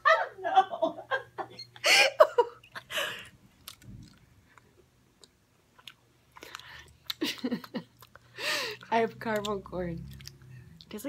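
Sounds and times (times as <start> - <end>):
person laughing: 0.0 - 3.3, 7.2 - 7.9
chewing: 3.6 - 11.0.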